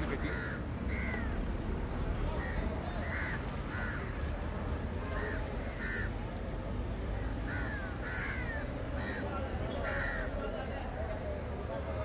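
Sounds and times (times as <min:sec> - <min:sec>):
crows cawing: 0:00.1 - 0:01.5, 0:02.4 - 0:04.3, 0:05.1 - 0:06.3, 0:07.4 - 0:10.4.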